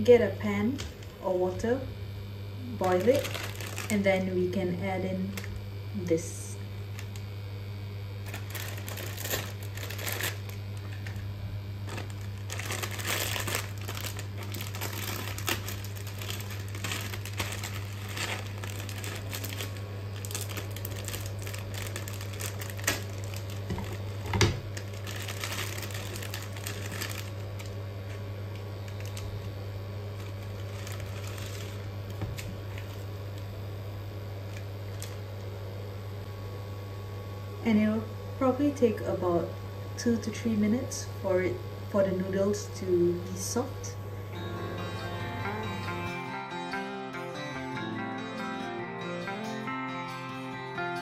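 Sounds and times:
steady low hum: 0.0s - 51.0s
plastic packet crinkling: 2.7s - 4.2s, 8.2s - 11.2s, 11.8s - 33.1s, 34.5s - 35.2s.

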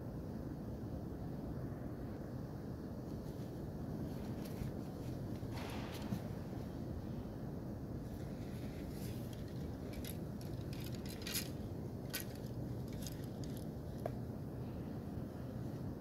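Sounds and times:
low background rumble: 0.0s - 16.0s
fabric rustling: 8.1s - 14.1s.

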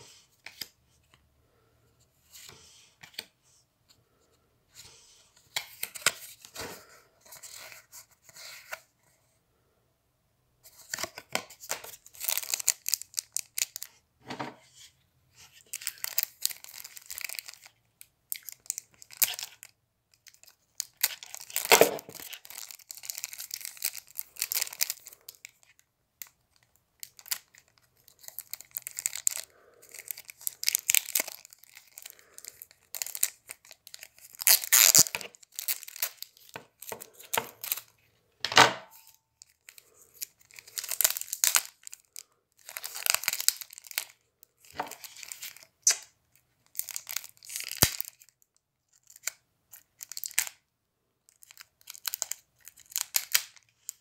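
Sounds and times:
plastic wrap crinkling and tearing: 10.7s - 14.0s, 15.5s - 38.1s, 39.0s - 50.6s, 51.3s - 54.0s.

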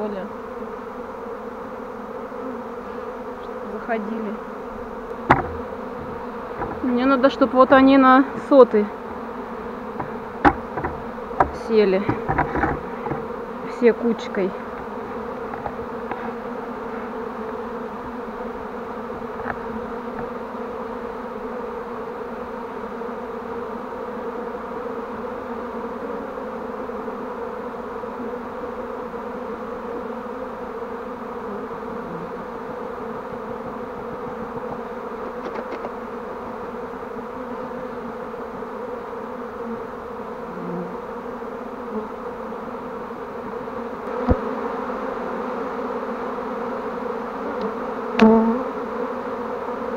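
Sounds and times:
bees buzzing: 0.0s - 49.9s
brief knock: 5.3s - 6.9s.

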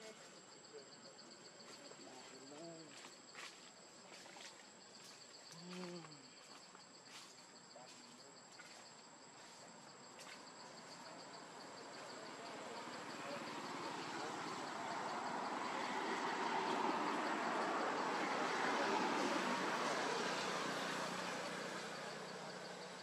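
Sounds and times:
insects chirring: 0.0s - 23.0s.

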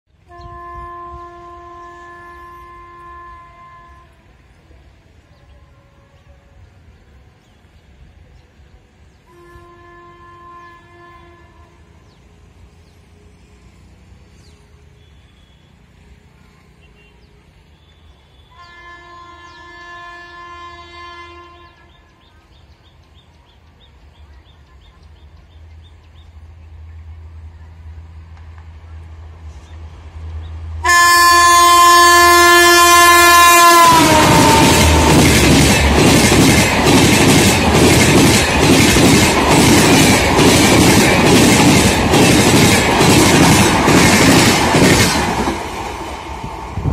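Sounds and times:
train horn blasts: 0.2s - 4.5s, 5.3s - 7.0s, 9.2s - 12.2s, 16.7s - 22.4s, 30.8s - 39.8s
train coaches rushing past: 22.1s - 46.9s
wheels clacking over rail joints: 33.6s - 46.8s.

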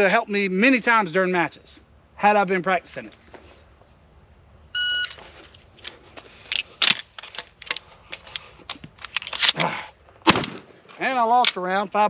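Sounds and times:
shells loaded into shotgun: 5.8s - 9.7s.

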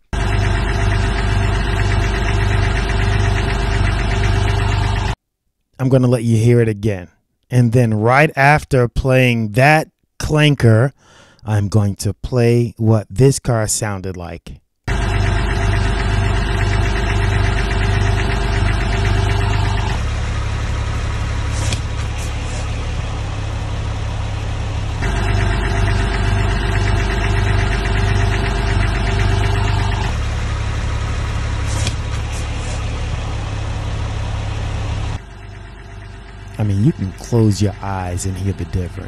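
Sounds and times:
car engine idling with clanking: 0.0s - 5.2s, 14.9s - 39.0s
car engine idling smoothly: 0.2s - 5.2s, 14.9s - 39.0s.

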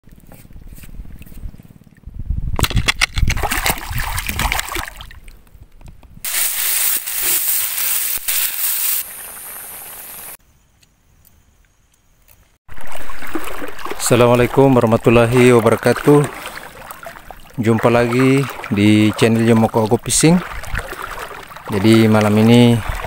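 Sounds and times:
seawater splashing: 12.7s - 23.0s.

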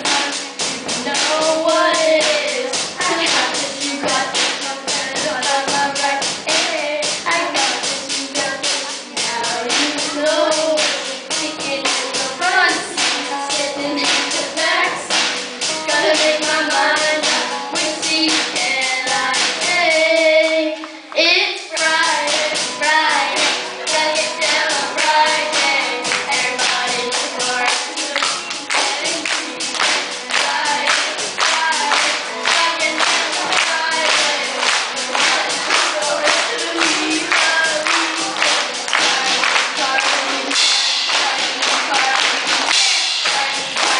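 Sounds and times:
boys singing into microphones: 0.0s - 43.9s
music with steady beat: 0.0s - 43.9s.

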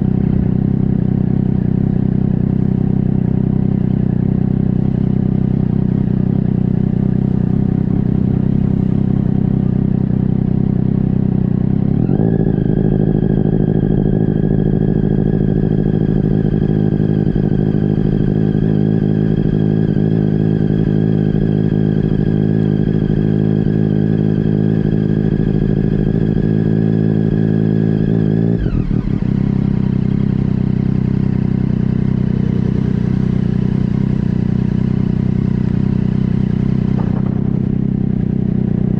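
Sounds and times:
engine whine: 0.0s - 38.9s
motorcycle engine: 0.0s - 38.9s.

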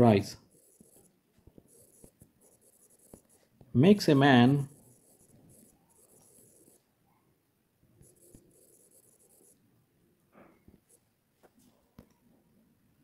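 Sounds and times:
stylus scratching on touchscreen: 0.0s - 6.9s, 8.0s - 9.7s, 10.7s - 11.1s.

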